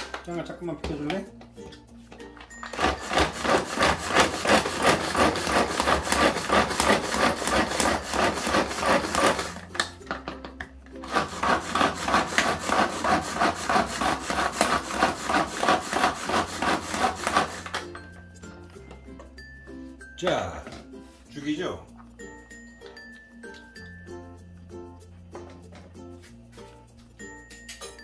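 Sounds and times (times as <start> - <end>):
vegetable chopper whirring and rattling: 2.5 - 10.0, 10.9 - 17.9.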